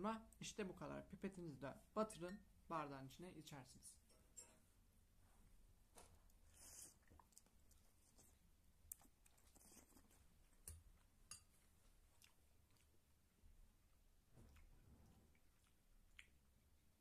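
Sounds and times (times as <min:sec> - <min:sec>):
faint chewing of noodles: 0:06.0 - 0:17.0.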